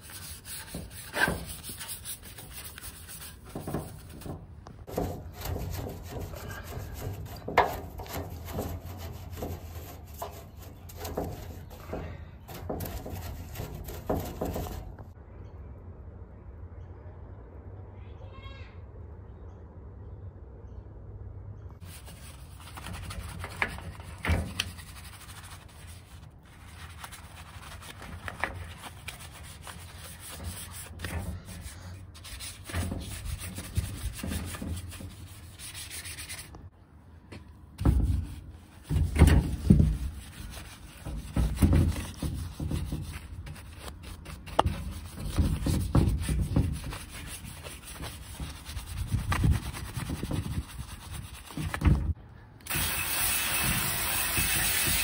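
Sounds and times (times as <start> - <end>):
brush scrubbing plastic grille: 0.0 - 15.1, 21.8 - 36.6, 37.8 - 52.2, 52.8 - 55.0.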